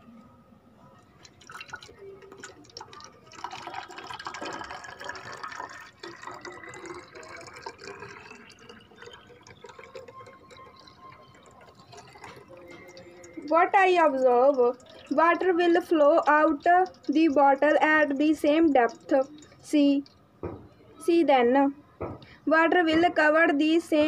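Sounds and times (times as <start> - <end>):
water pouring into plastic bottle: 1.1 - 20.2.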